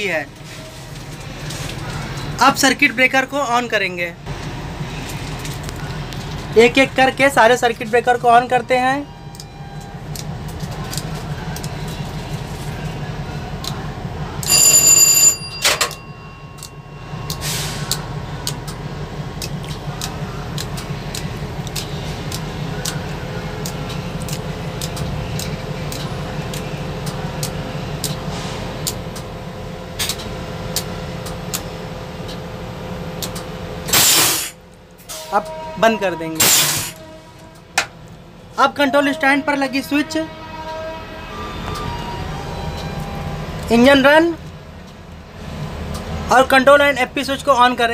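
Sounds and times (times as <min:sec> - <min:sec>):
electronic alarm tone: 0:14.4 - 0:17.8
steady low hum: 0:15.9 - 0:35.0.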